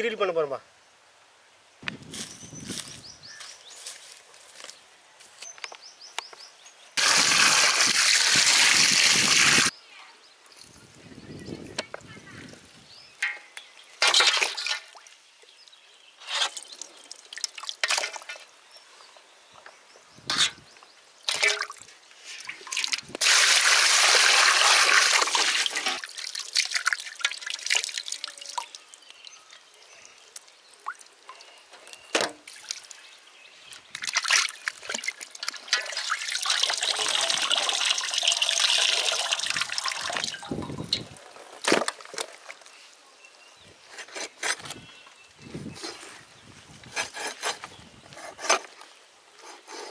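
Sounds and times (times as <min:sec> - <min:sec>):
water splashing in a steel basin: 0:13.2 - 0:15.2, 0:16.5 - 0:18.5, 0:21.3 - 0:21.8, 0:22.4 - 0:29.1, 0:33.9 - 0:41.0.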